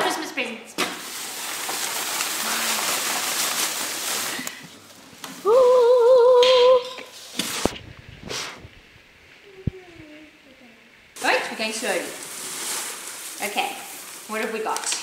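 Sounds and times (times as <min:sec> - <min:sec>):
shredded paper rustling: 0:00.8 - 0:05.8, 0:11.2 - 0:15.0
high voice singing held note: 0:05.4 - 0:07.0.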